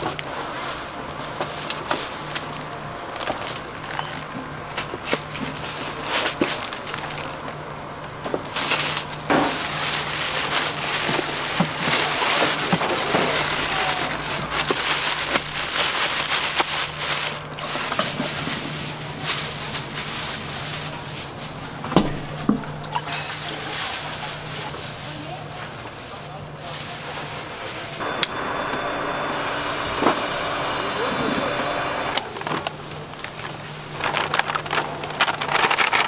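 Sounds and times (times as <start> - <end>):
steady low hum: 28.0 - 34.0.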